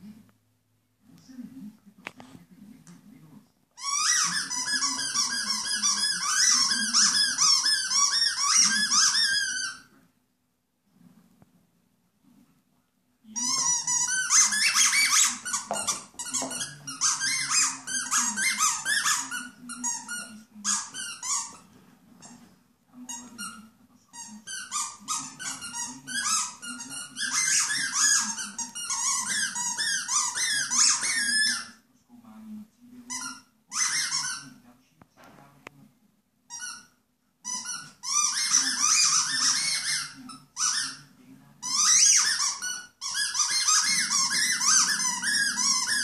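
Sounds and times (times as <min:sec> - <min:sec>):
squeaky toy squeaking: 0:03.8 - 0:09.9, 0:13.4 - 0:22.4, 0:23.1 - 0:31.8, 0:33.1 - 0:34.6, 0:36.5 - 0:46.0.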